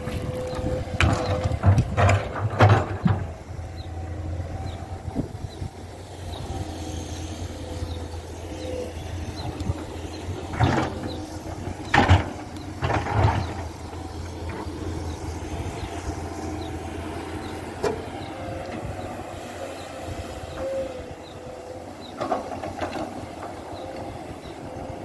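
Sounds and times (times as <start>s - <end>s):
excavator diesel engine running: 0.0s - 25.0s
boulders knocking and clattering: 0.9s - 3.3s.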